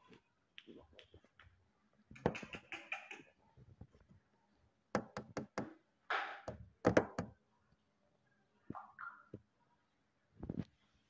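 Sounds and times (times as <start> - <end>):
parrot chatter: 2.2 - 3.4
sharp taps: 5.0 - 7.3.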